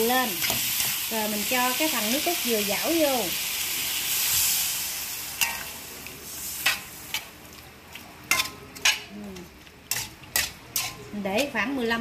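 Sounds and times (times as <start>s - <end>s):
fish sizzling in a wok: 0.0s - 12.0s
metal spatula scraping a wok: 9.9s - 11.6s.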